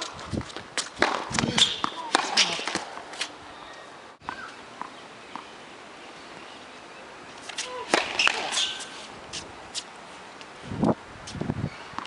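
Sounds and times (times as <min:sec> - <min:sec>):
tennis ball struck by rackets: 0:00.0 - 0:03.3, 0:07.4 - 0:09.9
shoes squeaking on court: 0:00.0 - 0:05.6, 0:07.3 - 0:10.0.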